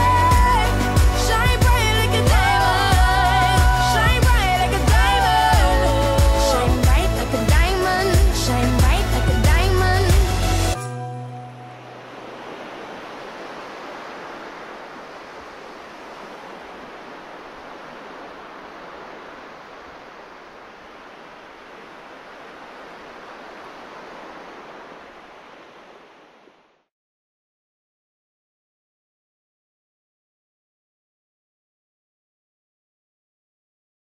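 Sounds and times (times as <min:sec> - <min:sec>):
steady rushing noise: 0:11.6 - 0:26.7.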